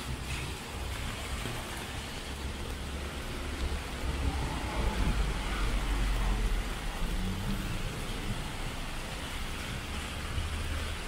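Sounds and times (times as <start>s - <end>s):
rain hiss on street: 0.0s - 11.0s
traffic: 0.0s - 11.0s
vehicle low rumble: 0.0s - 11.0s.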